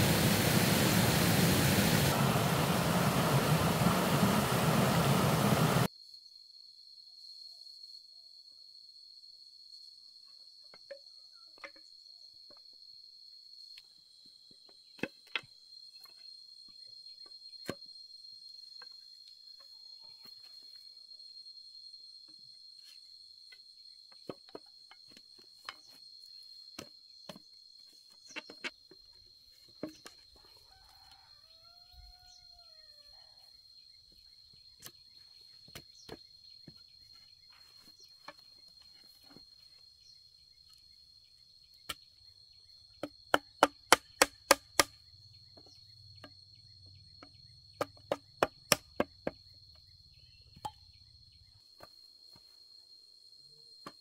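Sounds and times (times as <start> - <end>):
high insect trill: 15.5 - 53.8
bamboo knocks: 43.0 - 45.0, 47.8 - 49.4.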